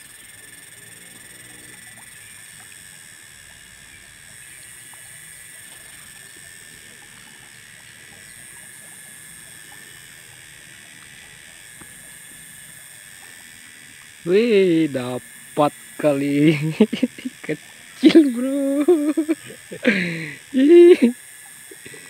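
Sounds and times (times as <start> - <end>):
faint small ticks: 0.0 - 14.3, 21.2 - 22.0
high-pitched insect drone: 0.0 - 22.0.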